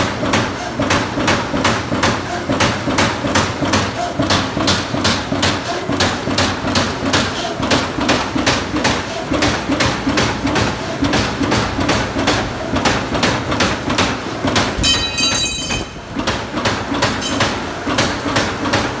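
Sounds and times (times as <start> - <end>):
punch press mechanical hits: 13.6 - 18.4.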